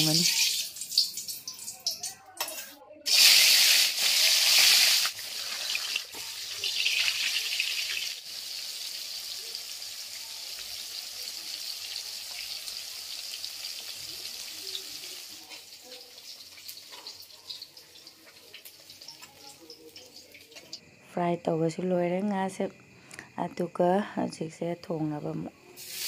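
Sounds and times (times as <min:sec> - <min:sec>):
fish sizzling in hot oil: 0:00.0 - 0:02.1, 0:03.1 - 0:20.8, 0:25.8 - 0:26.0.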